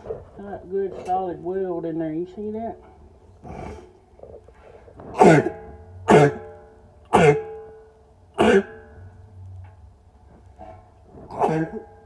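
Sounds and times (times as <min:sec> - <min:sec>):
man coughing into steel barrel: 0:05.1 - 0:07.7, 0:08.4 - 0:08.9, 0:11.3 - 0:11.9.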